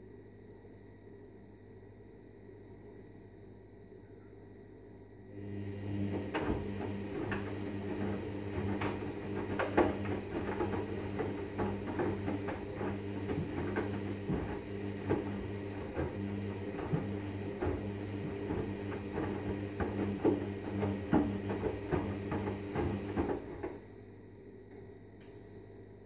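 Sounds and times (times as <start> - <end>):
washing machine motor hum: 5.3 - 24.1.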